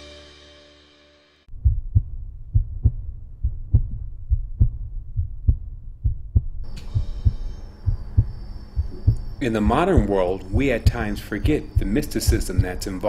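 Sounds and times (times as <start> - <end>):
heartbeat thumps: 1.5 - 13.0
thin high tone with hiss: 9.4 - 13.0.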